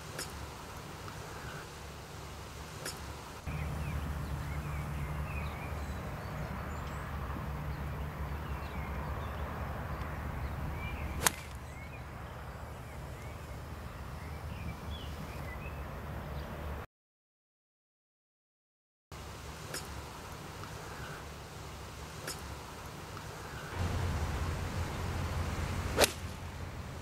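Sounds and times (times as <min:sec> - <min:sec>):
small birds chirping: 0:00.0 - 0:16.6, 0:19.6 - 0:26.1
golf club striking ball: 0:11.0 - 0:11.6, 0:22.2 - 0:22.5, 0:25.8 - 0:26.5
steady low rumble: 0:23.8 - 0:27.0.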